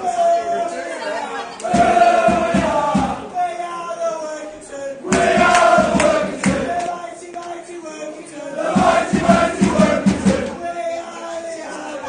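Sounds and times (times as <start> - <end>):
crowd of men chanting: 1.6 - 3.3, 4.9 - 7.0, 8.2 - 10.6
rhythmic beat: 1.7 - 3.3, 5.1 - 7.0, 8.6 - 10.6.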